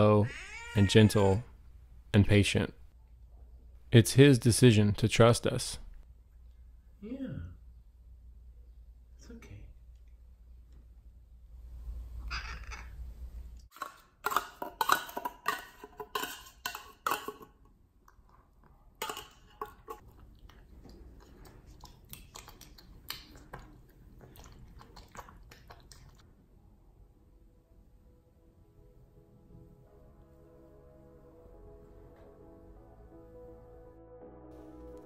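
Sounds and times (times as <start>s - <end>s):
cat eating: 19.7s - 26.2s.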